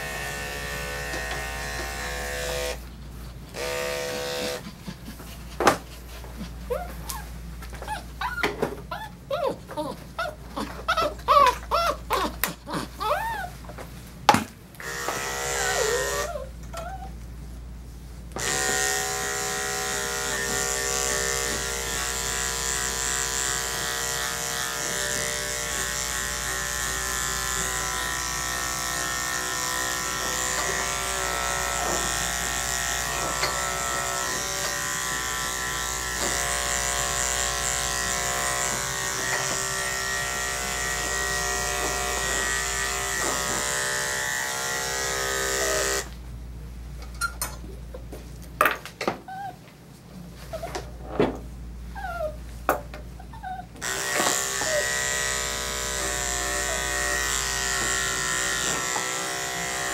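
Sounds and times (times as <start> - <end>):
electric clippers running: 0.0 - 2.9, 3.5 - 4.8, 14.8 - 16.5, 18.3 - 46.2, 53.8 - 59.9.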